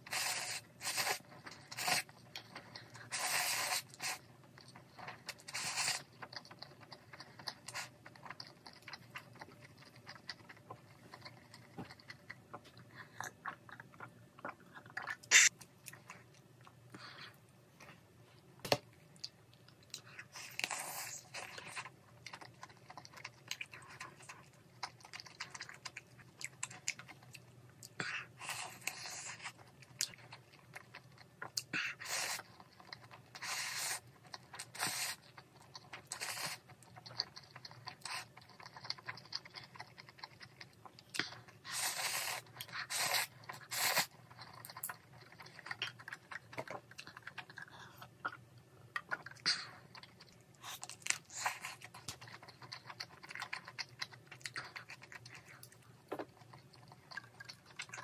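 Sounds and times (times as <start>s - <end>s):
chewing: 0.1s - 18.0s, 19.2s - 58.0s
slurping noodles: 3.0s - 4.2s.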